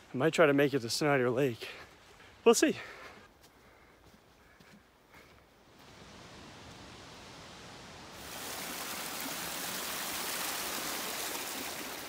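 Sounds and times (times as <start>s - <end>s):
mountain stream rushing over rocks: 5.8s - 12.0s.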